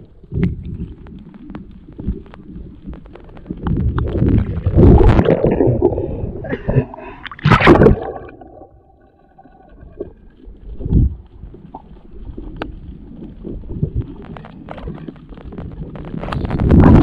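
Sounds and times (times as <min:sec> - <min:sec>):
low rumble: 0:00.0 - 0:17.0
muffled underwater noise: 0:00.0 - 0:17.0
faint clicks: 0:10.2 - 0:16.7.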